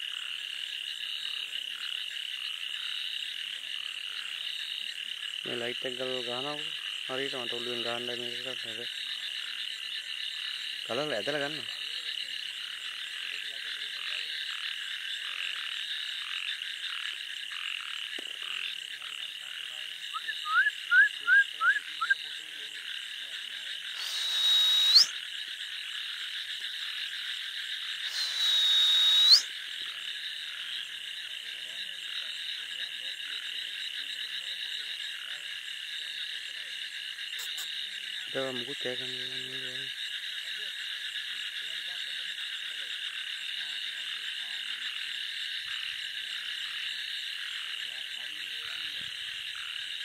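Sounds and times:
frogs calling: 0:00.0 - 0:50.0
loud hissing rushes: 0:24.0 - 0:25.1, 0:28.0 - 0:29.4
rising chirps: 0:24.0 - 0:25.1, 0:28.0 - 0:29.5.

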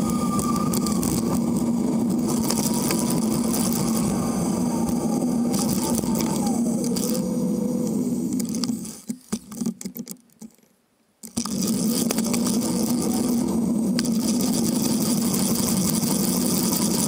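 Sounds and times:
wind noise: 0:00.0 - 0:09.0
falling whine: 0:00.0 - 0:09.1, 0:11.3 - 0:17.0
road rumble: 0:00.0 - 0:09.1, 0:11.5 - 0:17.0
bike clicks: 0:00.0 - 0:17.0.

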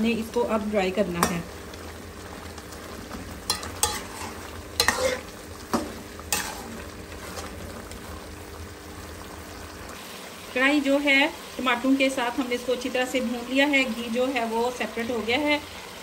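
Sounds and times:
food sizzling in a pan: 0:00.0 - 0:16.0
metal spoon scraping a pan: 0:03.4 - 0:07.6.

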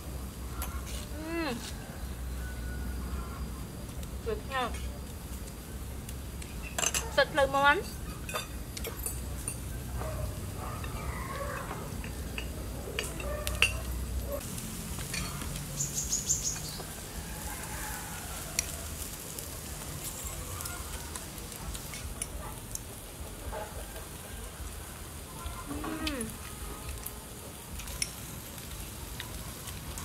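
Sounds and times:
meat sizzling on a grill: 0:00.0 - 0:30.0
spoons clinking on bowls: 0:06.6 - 0:07.2, 0:07.8 - 0:09.7, 0:10.8 - 0:14.0, 0:15.0 - 0:15.5.

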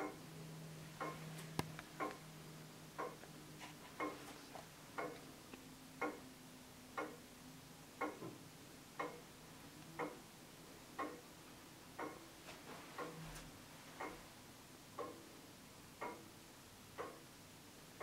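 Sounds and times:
clock ticking: 0:00.0 - 0:00.3, 0:01.0 - 0:01.3, 0:02.0 - 0:03.3, 0:04.0 - 0:04.2, 0:05.0 - 0:05.3, 0:06.0 - 0:06.3, 0:06.9 - 0:07.3, 0:08.0 - 0:10.3, 0:10.9 - 0:11.3, 0:11.9 - 0:12.3, 0:13.0 - 0:13.2, 0:15.0 - 0:15.3, 0:16.0 - 0:16.3, 0:16.9 - 0:17.3.

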